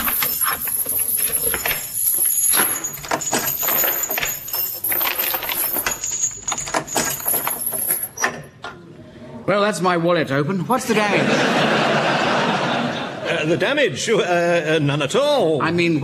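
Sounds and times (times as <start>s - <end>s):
house creaking and knocking: 0.0s - 8.6s.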